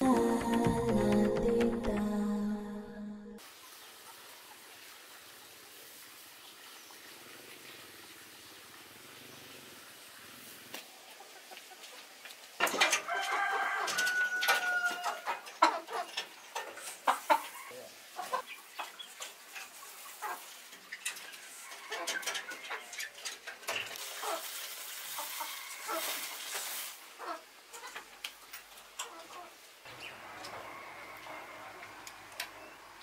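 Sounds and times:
chickens clucking: 0:10.7 - 0:33.0.

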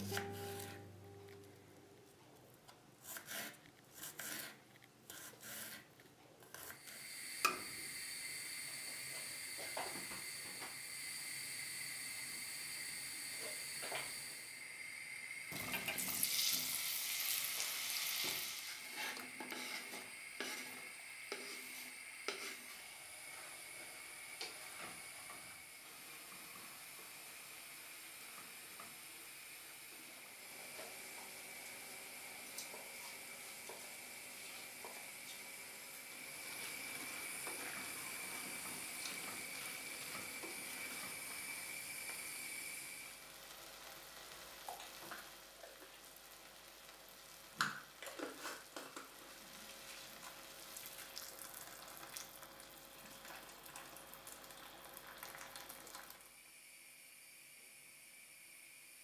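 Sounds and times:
wooden spoon scraping: 0:00.0 - 0:01.0, 0:03.0 - 0:06.8, 0:18.7 - 0:22.8
vegetables sizzling in a pot: 0:00.0 - 0:01.7, 0:06.5 - 0:59.0.

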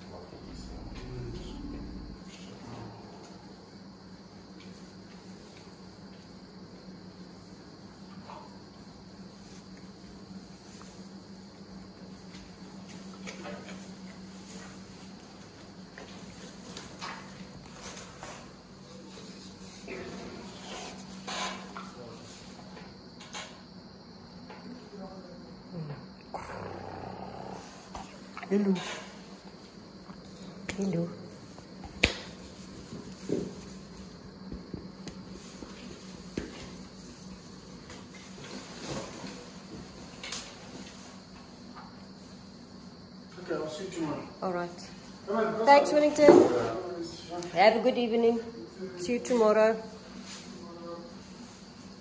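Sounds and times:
low hum: 0:00.4 - 0:02.3.

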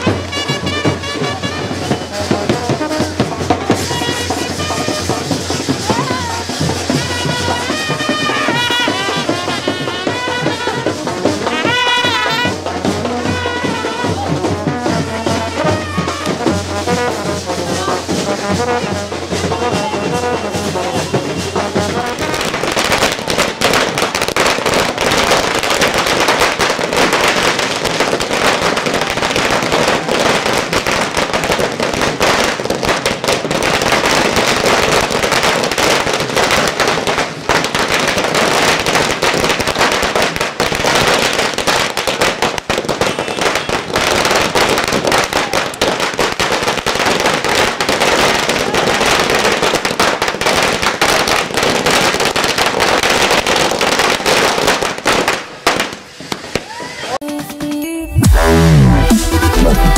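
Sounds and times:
brass band playing: 0:00.0 - 0:38.5, 0:58.1 - 0:59.9
firecrackers crackling: 0:00.0 - 0:59.9.

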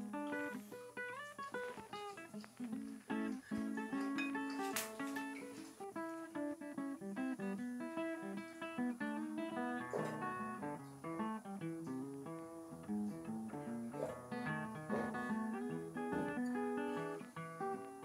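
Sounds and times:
acoustic guitar melody: 0:00.0 - 0:18.0.

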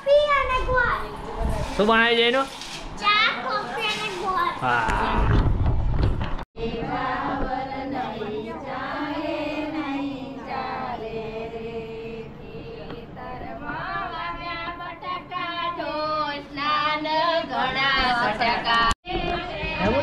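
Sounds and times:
high voices singing: 0:06.6 - 0:20.0.

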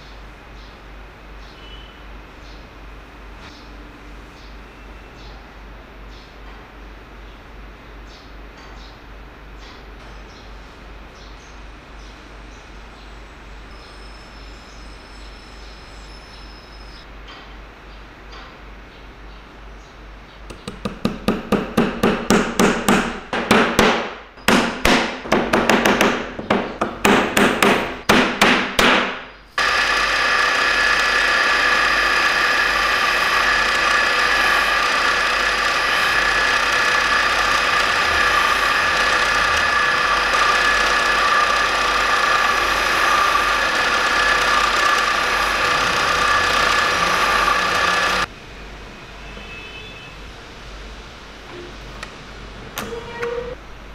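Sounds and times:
power tool whining: 0:29.6 - 0:48.3.

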